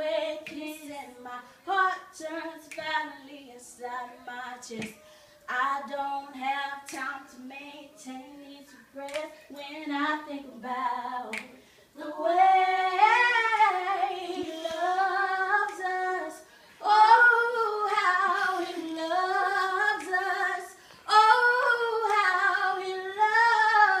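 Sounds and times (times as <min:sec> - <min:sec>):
woman singing unaccompanied: 0:00.0 - 0:24.0
woman breathing: 0:05.0 - 0:05.5, 0:11.6 - 0:12.0, 0:16.4 - 0:16.8.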